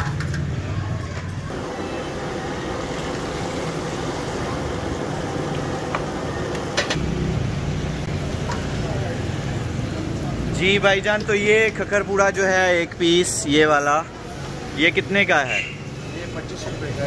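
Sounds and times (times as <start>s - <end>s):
batter sizzling in hot oil: 1.5s - 9.7s.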